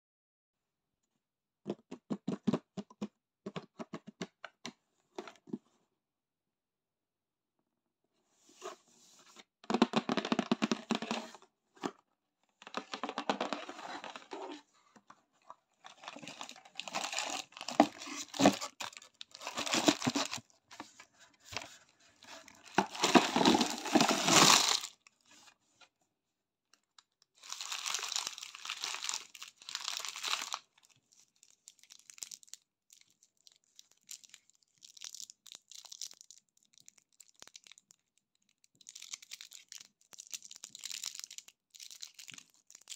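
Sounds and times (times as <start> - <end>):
plastic wrappers crinkling: 15.8 - 20.4, 22.4 - 25.1, 26.8 - 42.9
cardboard box tearing: 16.7 - 20.4, 22.8 - 24.9
foil wrapper crinkling: 22.8 - 25.0, 27.4 - 30.8.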